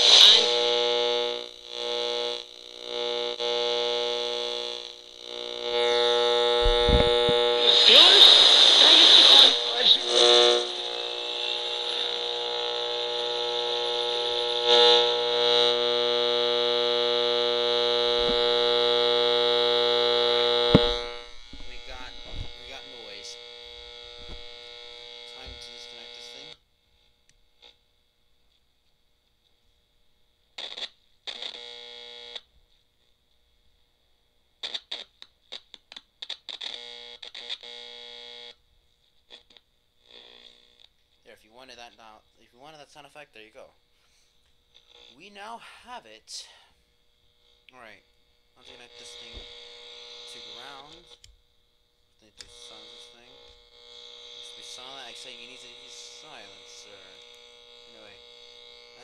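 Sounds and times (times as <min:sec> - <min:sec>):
electronic drone from speaker: 0:00.0 - 0:26.6, 0:48.6 - 0:51.2, 0:52.2 - 0:59.0.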